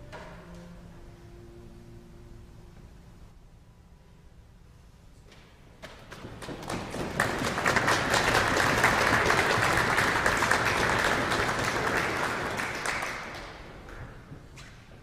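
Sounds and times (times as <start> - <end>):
audience applauding: 5.9 - 14.2.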